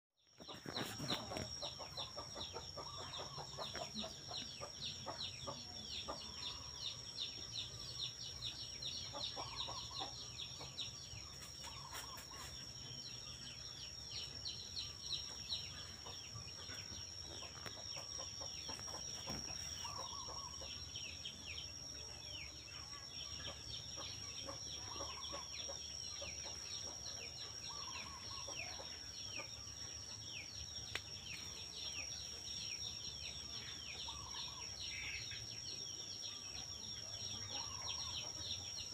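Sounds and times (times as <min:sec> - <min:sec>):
small birds chirping: 0:00.2 - 0:38.9.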